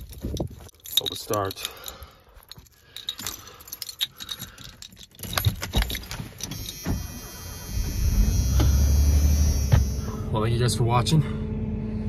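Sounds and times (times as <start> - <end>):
keys jangling: 0.0 - 6.9
ignition key turning: 2.6 - 8.8.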